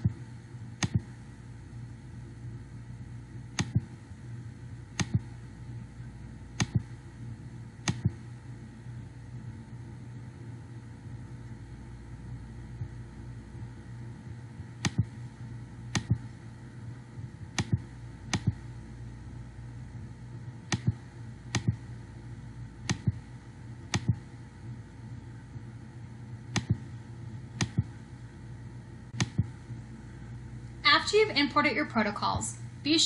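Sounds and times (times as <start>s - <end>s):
steady low hum: 0.0s - 33.0s
computer mouse clicking: 0.8s - 1.1s, 3.6s - 3.8s, 5.0s - 5.2s, 6.6s - 6.9s, 7.8s - 8.2s, 14.8s - 15.1s, 15.9s - 16.2s, 17.5s - 18.6s, 20.7s - 21.8s, 22.8s - 23.2s, 23.9s - 24.2s, 26.5s - 26.8s, 27.6s - 27.9s, 29.2s - 29.5s.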